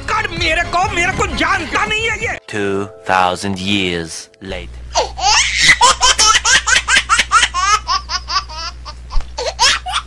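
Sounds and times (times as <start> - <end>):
steady low hum: 2.4 - 10.0.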